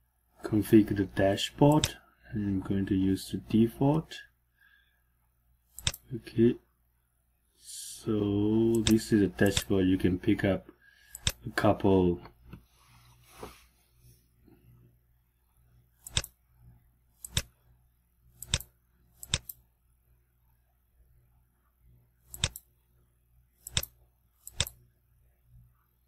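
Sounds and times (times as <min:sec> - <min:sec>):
computer mouse button clicking: 0:05.8 - 0:06.0, 0:08.7 - 0:09.7, 0:11.1 - 0:11.4, 0:16.0 - 0:16.4, 0:17.2 - 0:17.5, 0:18.4 - 0:19.6, 0:22.3 - 0:22.7, 0:23.6 - 0:24.8.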